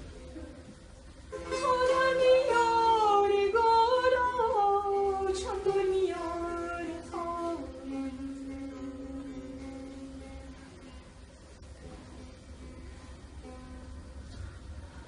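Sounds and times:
long-necked lute: 0.0 - 15.0
woman singing: 1.4 - 10.6.

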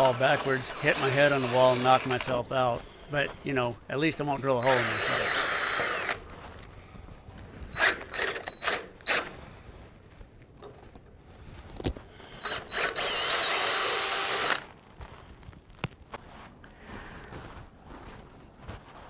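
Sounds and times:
cordless drill boring into metal: 0.0 - 3.2, 4.3 - 6.2, 7.7 - 9.4, 12.4 - 14.7.

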